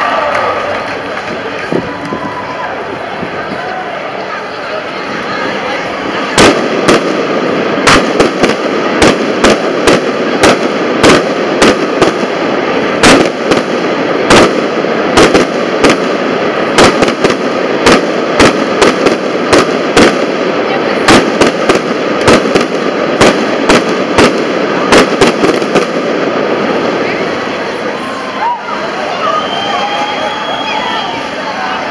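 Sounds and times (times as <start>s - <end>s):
fireworks bangs: 0.0s - 31.9s
steady noisy background: 0.0s - 31.9s.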